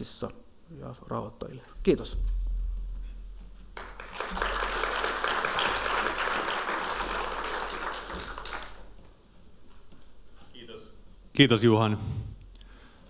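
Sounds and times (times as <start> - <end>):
audience applauding: 3.8 - 9.0.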